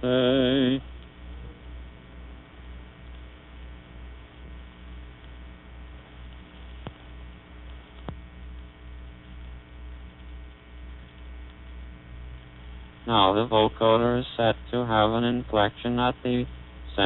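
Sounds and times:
electrical mains hum: 0:00.0 - 0:17.0
faint clicks: 0:06.2 - 0:08.3, 0:09.2 - 0:11.8.

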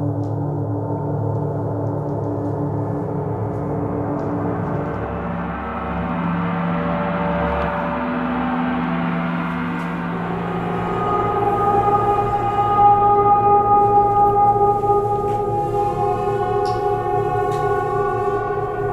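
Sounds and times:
gongs ringing: 0:06.8 - 0:18.9.

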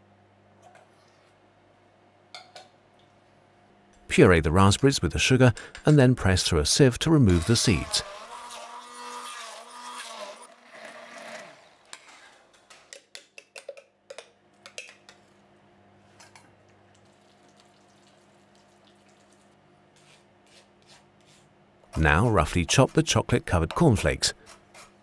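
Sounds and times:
stick blender motor running: 0:07.1 - 0:12.4
puree pouring into sieve: 0:10.4 - 0:11.9, 0:17.0 - 0:19.6.

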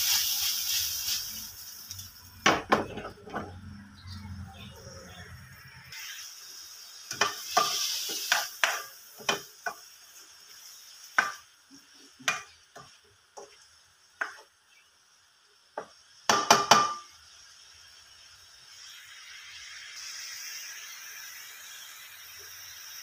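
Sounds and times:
squid sizzling: 0:00.0 - 0:02.9, 0:03.5 - 0:23.0
spatula scraping a wok: 0:07.1 - 0:12.6.

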